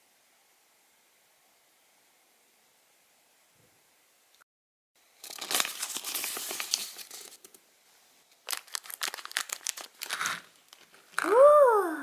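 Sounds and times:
scissors cutting plastic bag: 5.2 - 7.0, 8.5 - 11.4
plastic bag crinkling: 5.2 - 7.6, 8.4 - 11.4.

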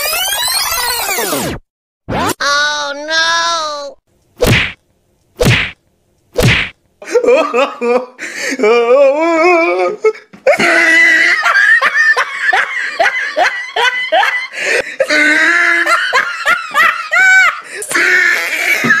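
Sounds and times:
person laughing hard: 7.0 - 8.9, 9.5 - 19.0.

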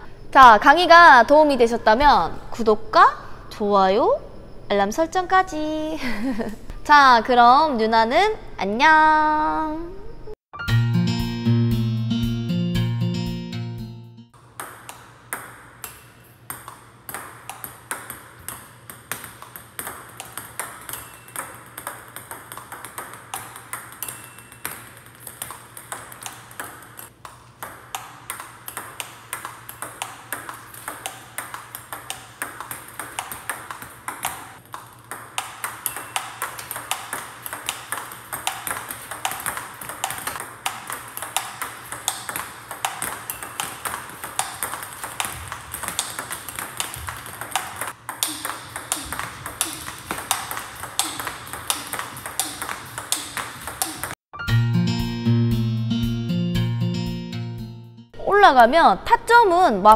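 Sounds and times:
table tennis ball hits: 14.4 - 54.2.

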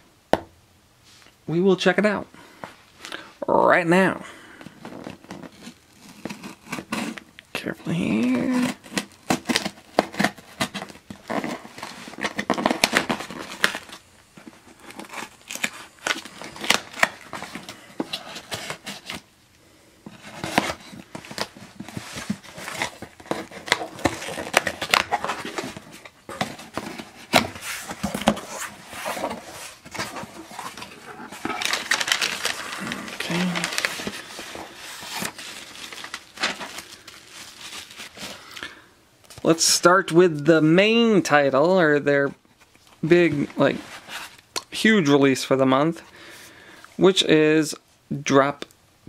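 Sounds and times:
packing paper rustling: 4.6 - 7.3, 7.9 - 19.3, 20.0 - 39.6, 42.6 - 45.1.

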